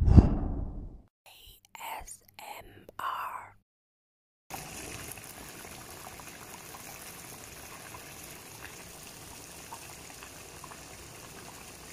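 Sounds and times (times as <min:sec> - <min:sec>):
curry bubbling in a pot: 0:04.5 - 0:11.9.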